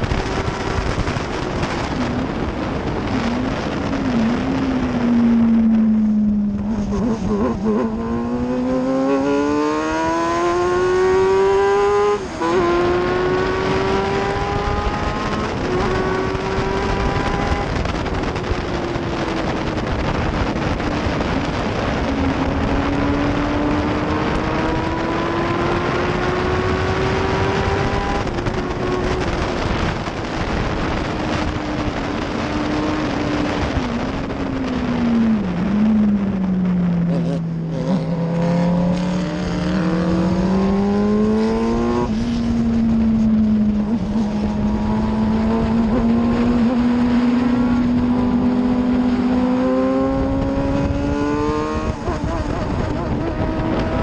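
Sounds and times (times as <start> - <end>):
race car engine: 0.0 - 54.0
wind rush: 0.0 - 54.0.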